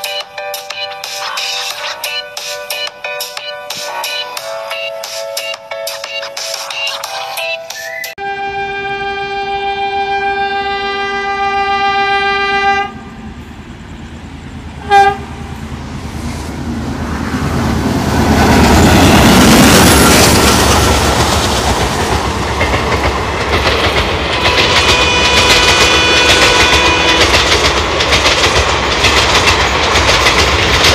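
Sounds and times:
diesel locomotive horn: 0:08.2 - 0:13.4, 0:14.8 - 0:15.7, 0:24.3 - 0:27.6
train engine rumble: 0:08.3 - 0:30.9
train wheel clatter: 0:18.1 - 0:30.9.

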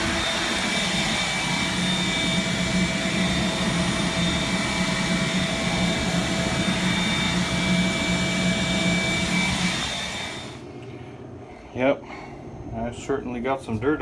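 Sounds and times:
vacuum motor whining: 0:00.0 - 0:10.7.

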